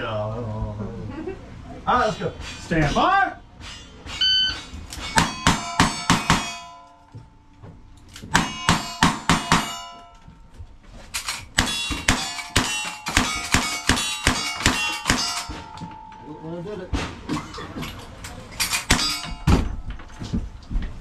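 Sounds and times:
steel target ringing: 3.6 - 7.5, 8.3 - 10.4, 11.4 - 16.9, 18.8 - 19.9.

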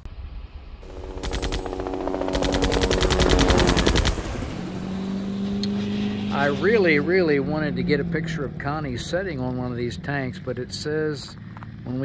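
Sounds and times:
machine-gun fire: 0.8 - 4.6
steady hum: 0.8 - 6.7.

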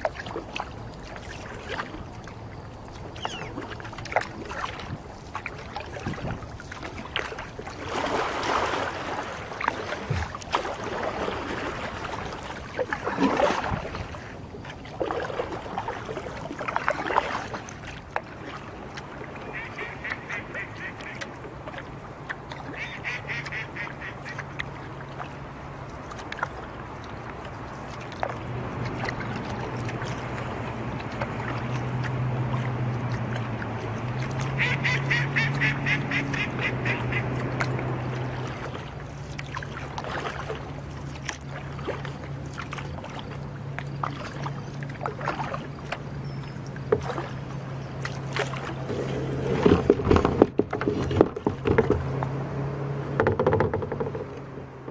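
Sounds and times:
ducks and geese calling: 3.1 - 3.6, 19.4 - 21.3, 22.7 - 24.5, 34.3 - 38.5
kayak hull scraping on stones: 48.4 - 52.4.

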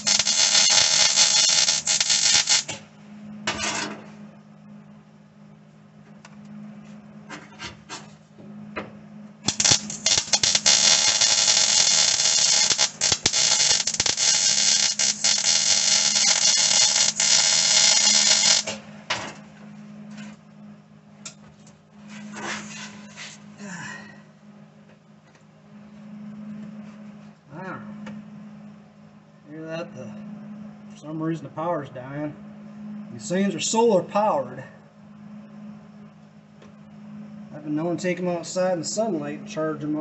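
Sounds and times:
electric arc welding crackle: 0.0 - 2.9, 9.4 - 18.9
steady low hum: 0.0 - 40.0.

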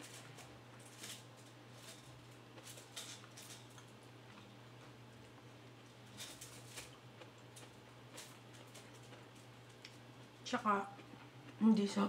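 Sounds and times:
low steady hum: 0.0 - 12.0
person chewing: 2.3 - 10.3.

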